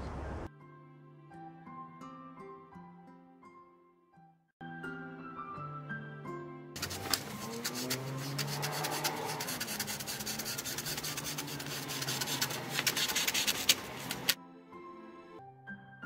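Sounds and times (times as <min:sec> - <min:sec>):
scissors cutting vinyl film: 0:06.8 - 0:14.4.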